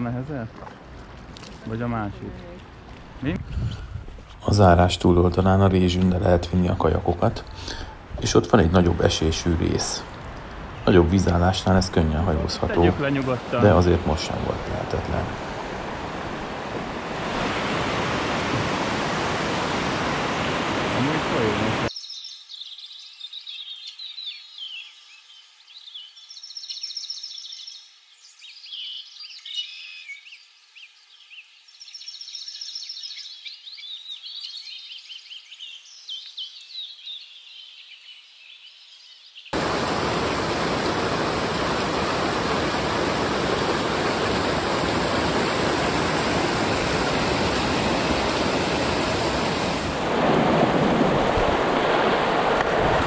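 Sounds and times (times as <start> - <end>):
white water rushing: 4.4 - 21.9, 39.6 - 53.0
birds chirping and singing: 21.9 - 41.8.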